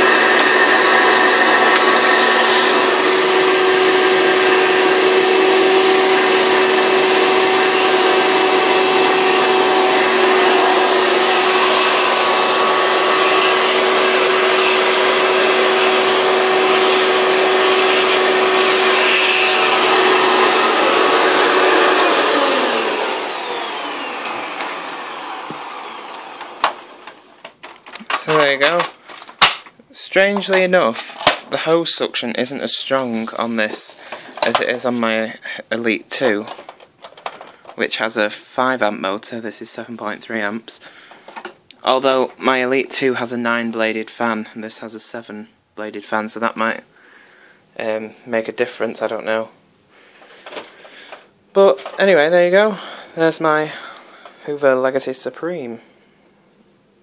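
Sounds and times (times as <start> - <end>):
vacuum cleaner motor whining: 0.0 - 29.5, 32.5 - 35.2.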